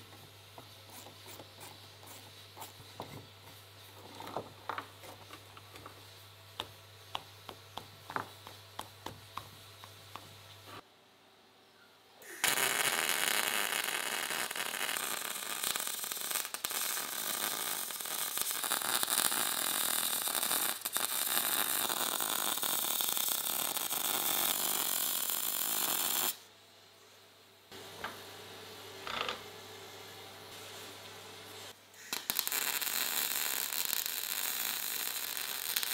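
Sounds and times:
welding arc crackling: 12.3s - 26.4s, 32.0s - 35.9s.

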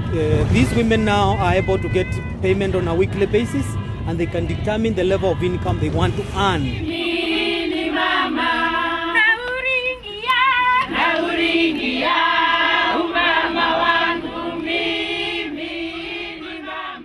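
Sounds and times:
women's choir singing: 6.6s - 17.0s.

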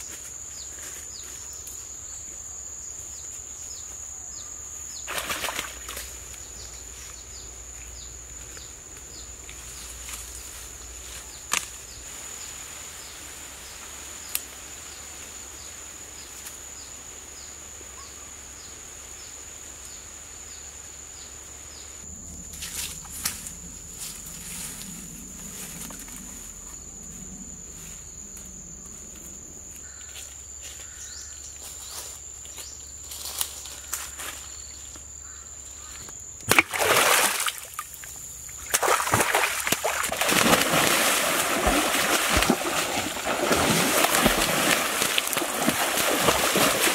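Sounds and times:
water splashing: 36.5s - 46.9s.

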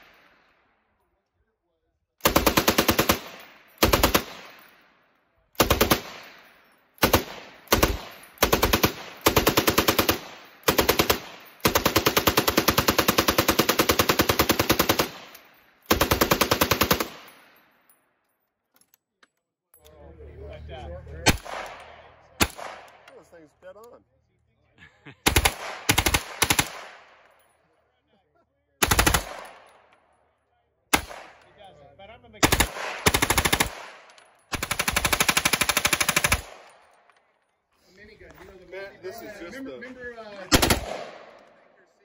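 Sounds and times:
machine gun automatic bursts: 2.2s - 4.6s, 5.6s - 6.2s, 7.0s - 17.3s, 25.3s - 27.0s, 28.8s - 29.6s, 32.4s - 36.7s, 40.5s - 41.0s
loud single gunshots: 40.5s - 41.3s.

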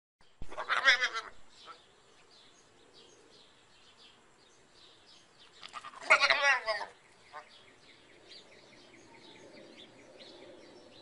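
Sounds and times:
goat bleating: 0.5s - 1.4s, 5.7s - 7.0s.

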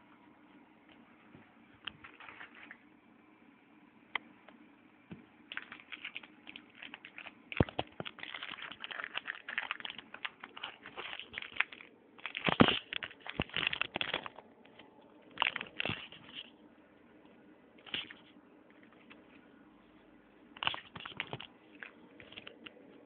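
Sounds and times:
foil wrapper crinkling: 2.0s - 2.8s, 5.5s - 16.5s, 17.8s - 18.3s, 20.6s - 22.7s.

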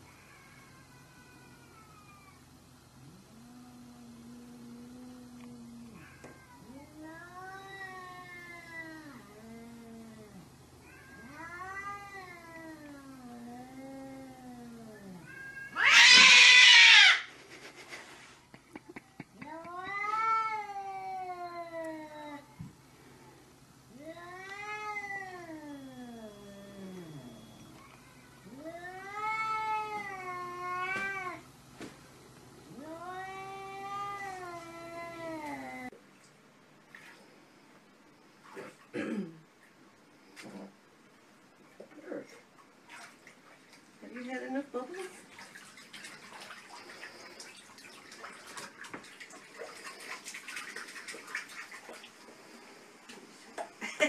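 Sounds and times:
cat yowling: 0.1s - 2.5s, 5.9s - 17.3s, 19.4s - 22.5s, 24.0s - 31.4s
bubbles crackling in bathtub water: 45.0s - 52.5s.

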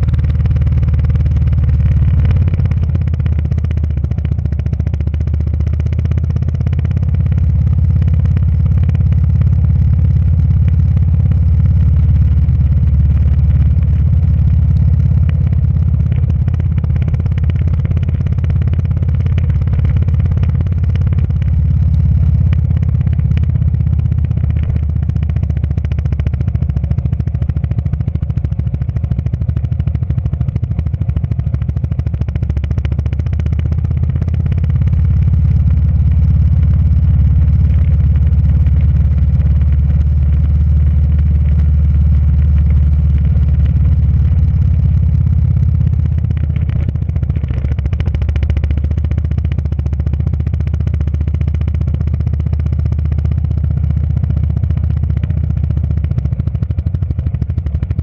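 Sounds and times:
motorcycle engine rumbling: 0.0s - 58.0s.

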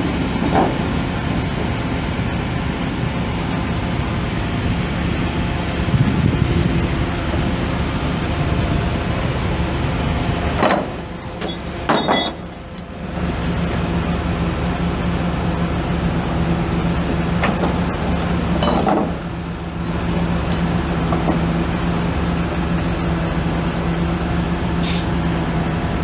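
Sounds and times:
truck engine idling: 0.0s - 26.0s
air brake hisses: 24.8s - 25.2s.

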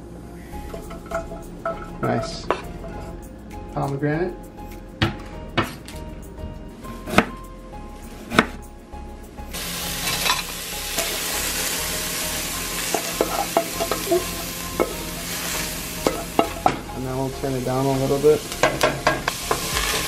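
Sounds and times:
onion and peppers sizzling in pan: 9.5s - 20.0s.

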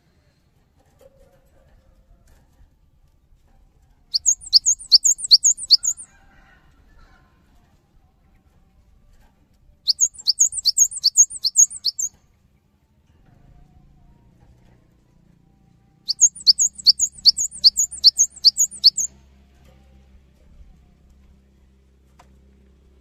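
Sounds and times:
bird singing high phrases: 4.1s - 6.1s, 9.9s - 12.2s, 16.1s - 19.1s.

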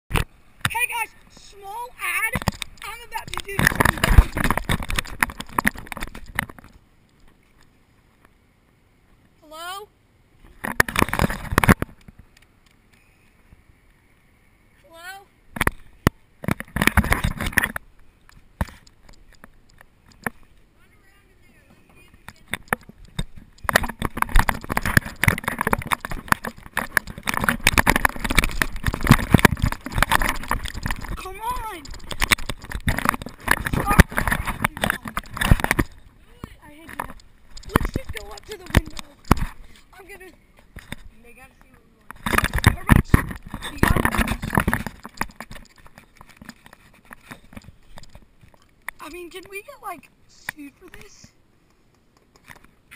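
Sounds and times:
camera handling rattle: 2.3s - 6.8s, 22.2s - 36.1s, 36.7s - 39.9s, 42.1s - 49.0s.

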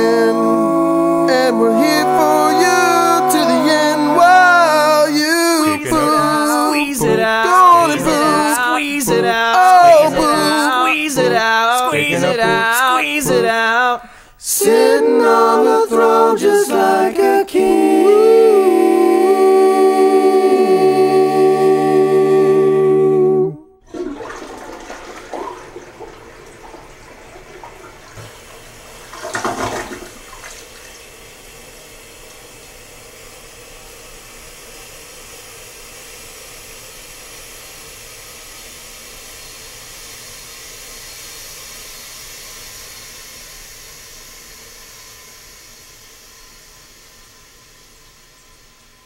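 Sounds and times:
a cappella voices chord: 0.0s - 23.8s
cistern refilling water rush: 23.8s - 48.5s
toilet flushing: 23.8s - 49.0s.

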